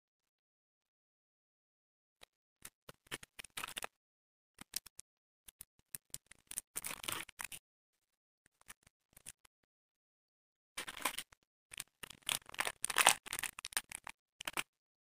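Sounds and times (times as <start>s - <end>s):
plastic wrappers crinkling: 10.8s - 14.6s.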